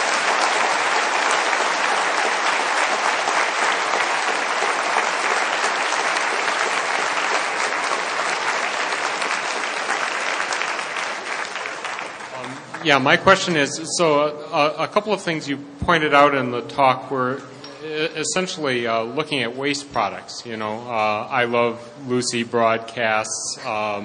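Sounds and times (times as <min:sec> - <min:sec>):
audience applauding: 0:00.0 - 0:13.7.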